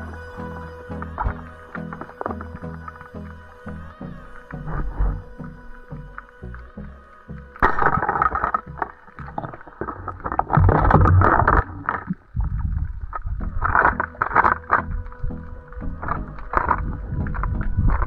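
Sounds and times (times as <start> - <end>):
underwater rushing and rumbling: 0.0 - 18.0.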